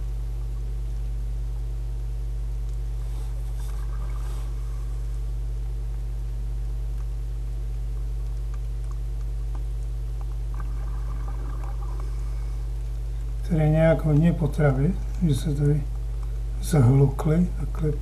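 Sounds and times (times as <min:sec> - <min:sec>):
steady hum tones: 0:00.0 - 0:18.0
underwater low drone: 0:03.0 - 0:06.6, 0:09.1 - 0:13.4.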